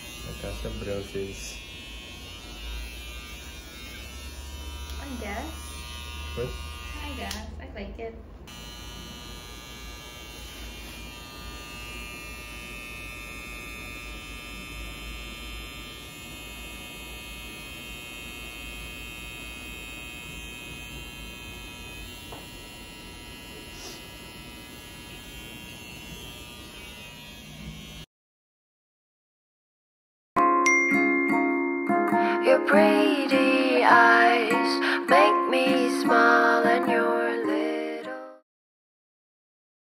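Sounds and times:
electric hair clippers buzzing: 0.0s - 7.6s, 8.4s - 28.1s.

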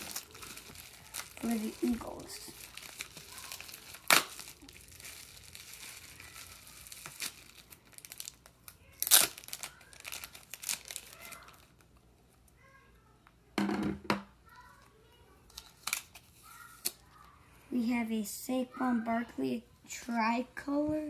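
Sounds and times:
plastic wrapping crinkling: 0.0s - 12.0s, 15.5s - 17.3s.

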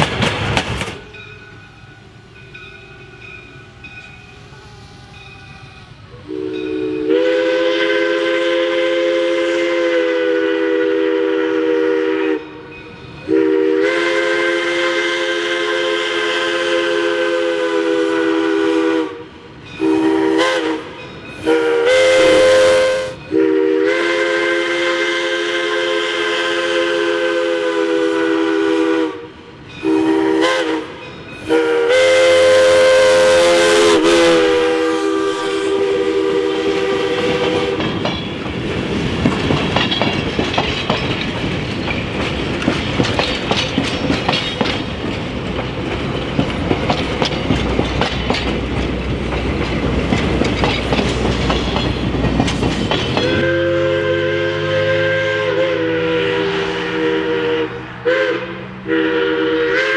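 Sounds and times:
steam whistle blasts: 1.0s - 38.0s, 53.2s - 59.9s.

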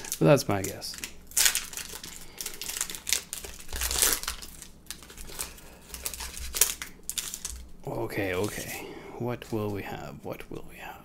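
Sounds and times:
foil wrapper crinkling: 0.0s - 8.8s.

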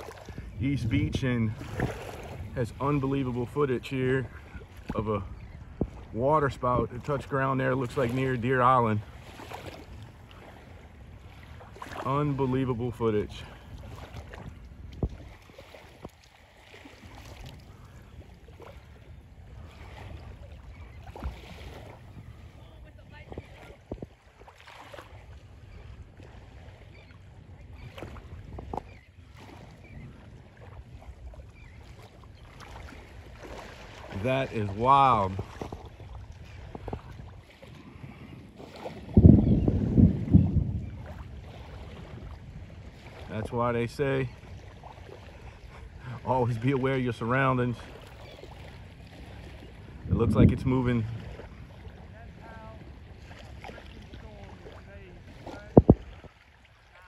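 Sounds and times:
wind buffeting microphone: 0.0s - 56.5s
faint lapping water: 0.0s - 57.0s.

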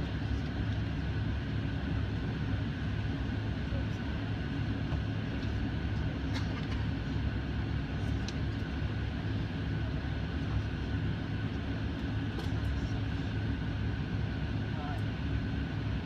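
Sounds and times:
airliner cabin rumble: 0.0s - 16.0s
faint steady whine: 0.0s - 16.0s.

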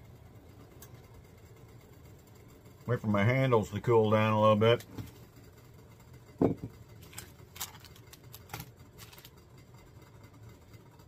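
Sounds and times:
mug knock on wooden table: 6.4s - 6.7s
foil sachet crinkling: 7.0s - 9.4s.

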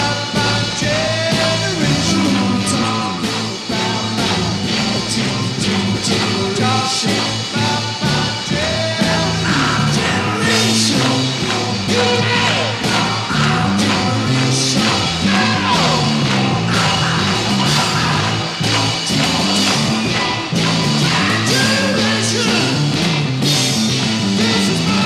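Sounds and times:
bass line: 0.0s - 25.0s
drums with cymbals: 0.0s - 25.0s
electric guitar sliding bends: 9.4s - 25.0s.

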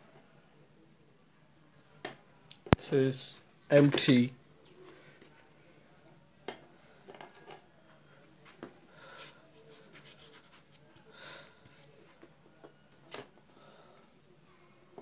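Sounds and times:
paintbrush strokes on board: 8.4s - 12.2s.

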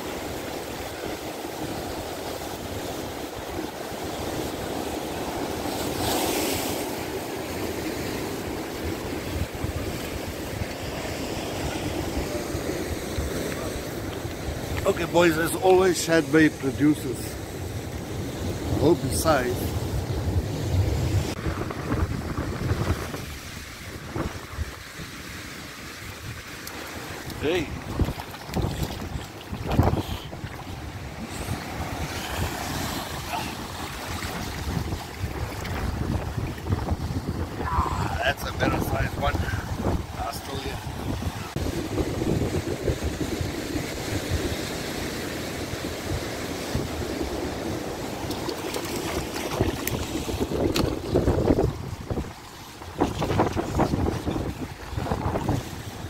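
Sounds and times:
ocean surf on rocks: 0.0s - 56.0s
wind rumbling on microphone: 17.2s - 26.5s, 27.1s - 56.0s.

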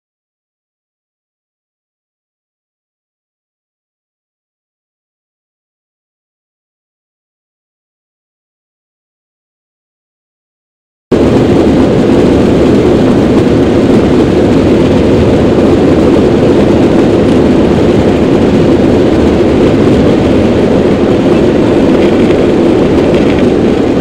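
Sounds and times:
jet engines at takeoff thrust: 11.1s - 24.0s.

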